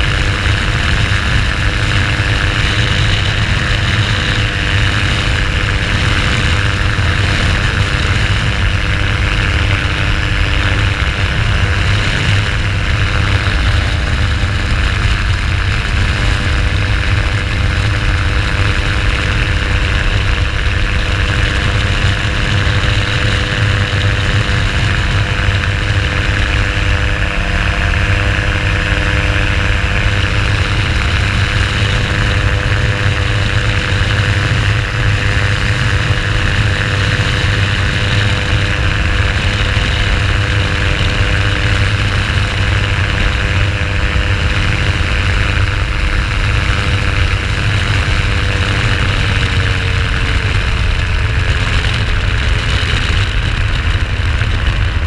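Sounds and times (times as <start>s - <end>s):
light aircraft engine and propeller: 0.0s - 55.0s
wind rushing: 22.0s - 33.6s.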